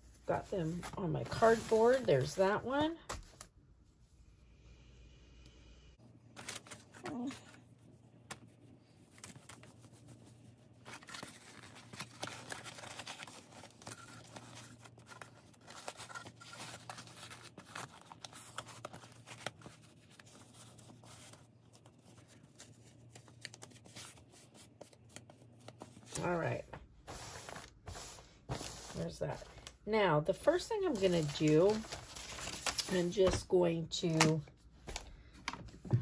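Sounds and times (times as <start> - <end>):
fabric rustling against cardboard: 30.8 - 33.4.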